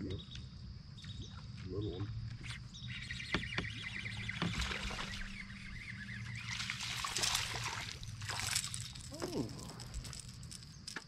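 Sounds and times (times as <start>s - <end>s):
fish splashing in water: 6.3s - 9.3s.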